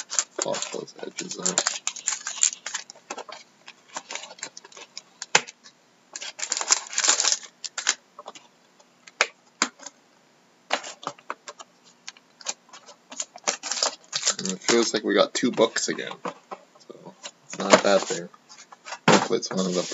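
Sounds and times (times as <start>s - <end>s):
foil wrapper crinkling: 0.0s - 8.4s, 12.1s - 16.1s.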